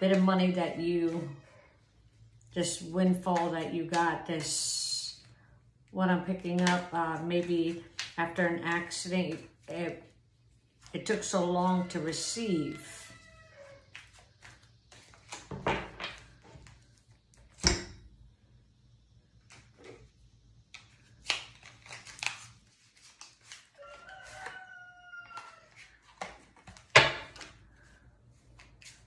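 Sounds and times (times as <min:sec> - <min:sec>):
cards being shuffled: 0:13.9 - 0:17.6, 0:20.7 - 0:24.4, 0:25.3 - 0:29.0
cards slapping: 0:20.7 - 0:24.4
rooster crowing: 0:23.8 - 0:25.9.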